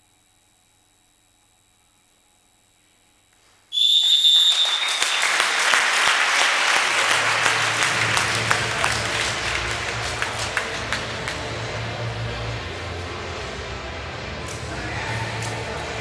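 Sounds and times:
referee's whistle: 3.7 - 5.4
crowd applause: 3.9 - 16.0.

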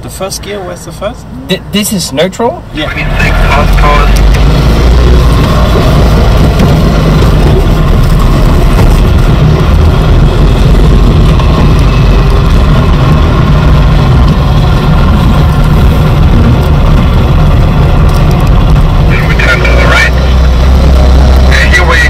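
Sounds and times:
car engine running: 2.4 - 22.0.

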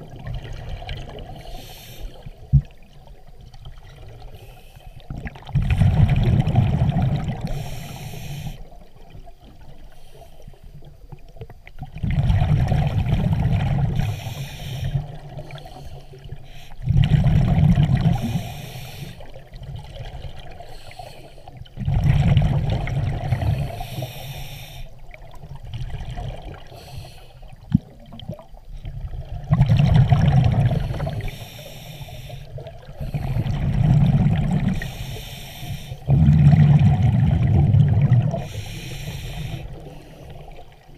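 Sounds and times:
exhaled bubbles rushing: 5.1 - 7.6, 11.8 - 14.1, 16.8 - 18.4, 21.8 - 23.8, 25.2 - 26.7, 27.5 - 31.3, 32.6 - 35.0, 36.0 - 38.7.

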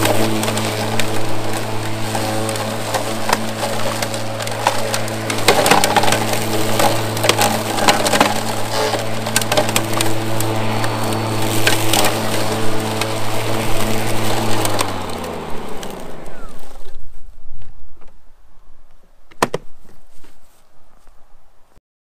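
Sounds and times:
lawn mower humming: 0.0 - 17.2
blade crackling through grass: 0.0 - 18.1.

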